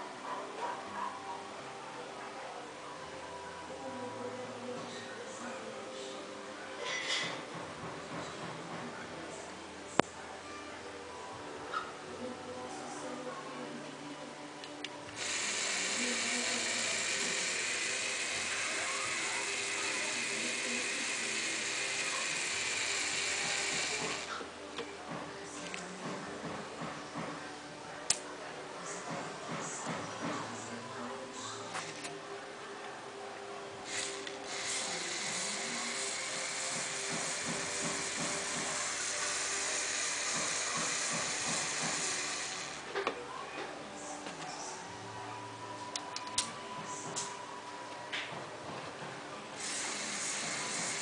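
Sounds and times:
plastic gears whirring: 15.2 - 24.4, 33.9 - 42.9, 49.6 - 51.0.

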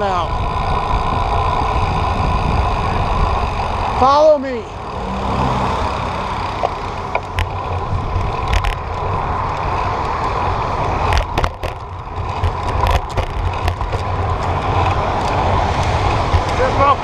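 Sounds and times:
bicycle rolling: 0.0 - 17.0
wind rushing over microphone: 0.0 - 17.0
sharp clicks and knocks: 6.5 - 10.3, 11.0 - 16.7.

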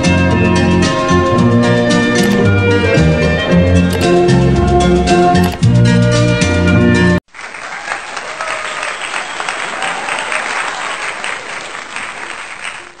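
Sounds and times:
applause: 7.3 - 13.0.

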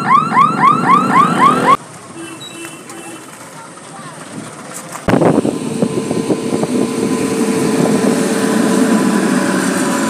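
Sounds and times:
electric locomotive rumbling: 3.3 - 10.0.

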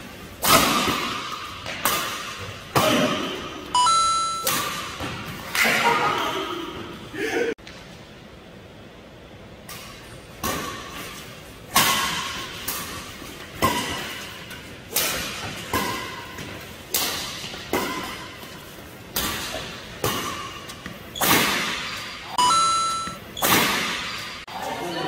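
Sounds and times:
rackets hitting shuttlecock: 4.3 - 5.8.

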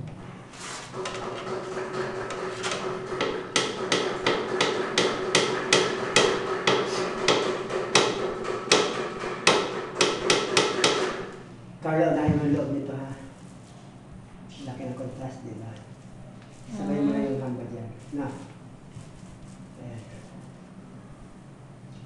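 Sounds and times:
paint roller knocking against can: 0.9 - 11.3.

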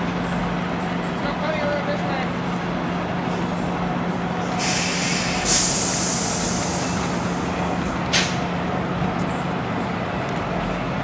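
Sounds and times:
diesel truck engine running: 0.0 - 11.0
air brake hiss: 4.4 - 7.4.

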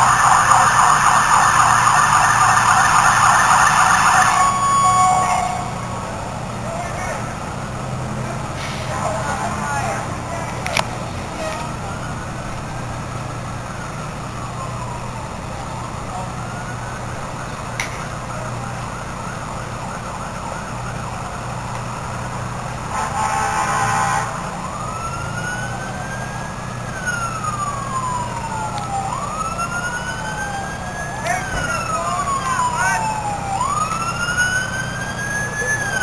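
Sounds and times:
fire engine siren wailing: 0.0 - 36.0
loud horn blast: 22.8 - 24.6.

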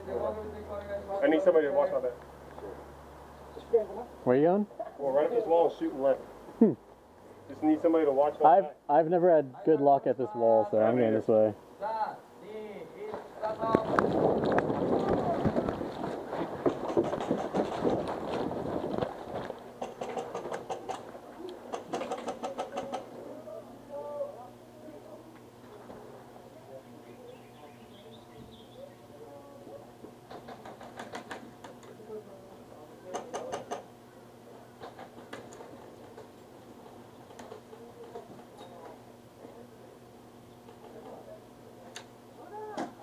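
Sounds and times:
footsteps: 13.0 - 20.0.

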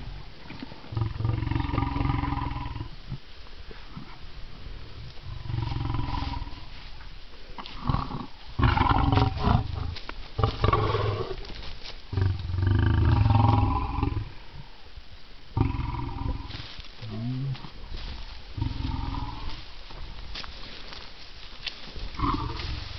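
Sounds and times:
lions growling: 0.5 - 2.9, 5.2 - 6.7, 7.7 - 11.5, 15.6 - 17.6, 18.5 - 19.6, 22.2 - 22.9.

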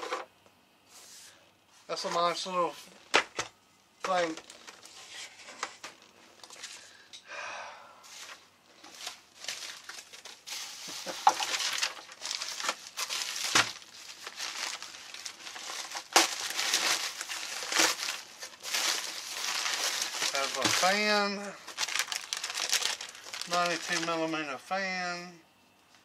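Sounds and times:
paper rustling and crinkling: 4.1 - 6.9, 8.1 - 24.5.

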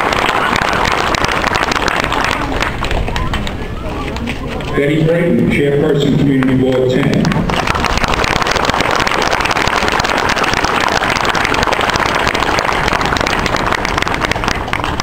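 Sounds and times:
crowd applauding: 0.0 - 4.8, 6.4 - 15.0.

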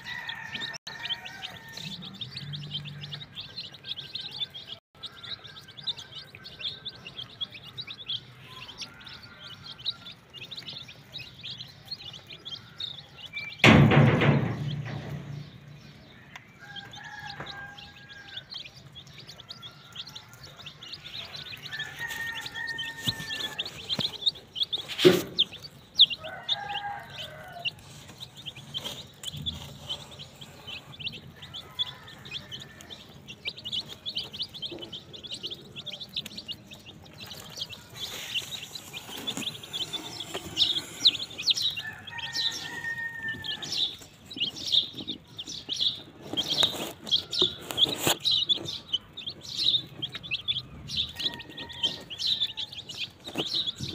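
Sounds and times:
chicks peeping: 0.0 - 53.9
sharp knock: 13.6 - 15.6.

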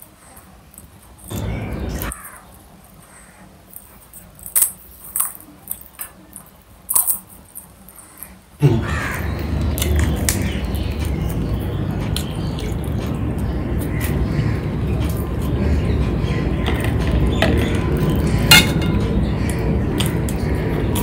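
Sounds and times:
crows cawing: 1.3 - 3.6, 8.0 - 9.7
steady rushing noise: 8.6 - 21.0.

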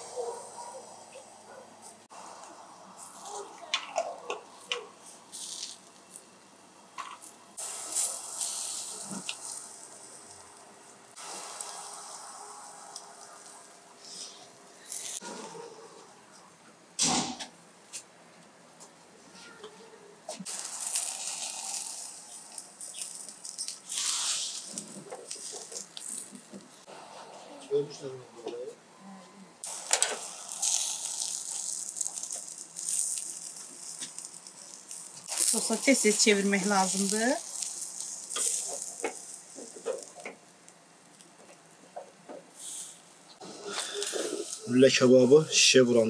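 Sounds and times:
meat sizzling on charcoal grill: 2.0 - 6.5, 7.1 - 15.6, 20.4 - 27.8, 29.6 - 41.8, 42.5 - 46.0
pops and crackles: 2.4 - 6.3, 7.0 - 15.6, 20.3 - 26.9, 29.6 - 44.7.

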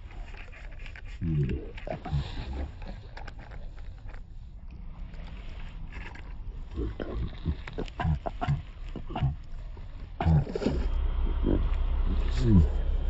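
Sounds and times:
man's voice in short bursts: 11.4 - 13.0.

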